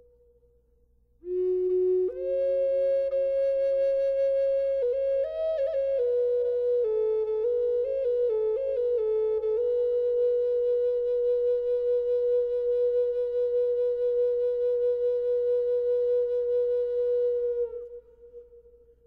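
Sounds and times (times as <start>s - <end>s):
flute holding a long note: 1.2s - 18.8s.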